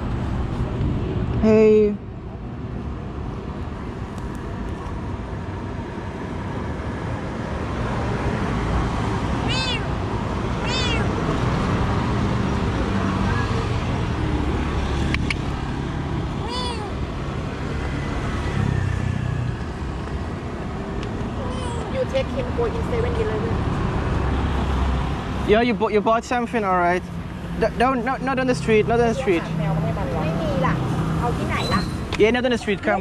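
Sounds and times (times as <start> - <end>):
steady traffic noise: 0.0 - 33.0
cat meowing: 9.4 - 11.2, 16.4 - 17.0.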